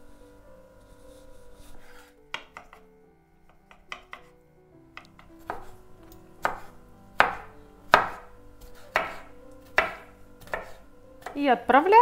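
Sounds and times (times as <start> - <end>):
knife chopping on wooden board: 1.8 - 2.9, 3.6 - 4.3, 5.0 - 5.8, 6.4 - 11.4.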